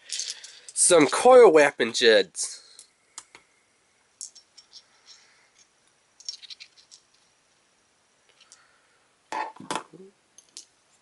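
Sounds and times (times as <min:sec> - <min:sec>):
metal jigs clicking and rattling: 0:04.2 - 0:07.3.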